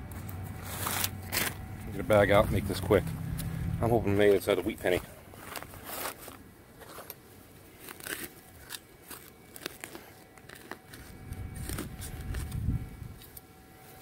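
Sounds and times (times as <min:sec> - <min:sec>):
digging tool scraping soil: 0:00.5 - 0:03.5, 0:05.3 - 0:07.1
plastic bag crinkling: 0:04.6 - 0:12.6.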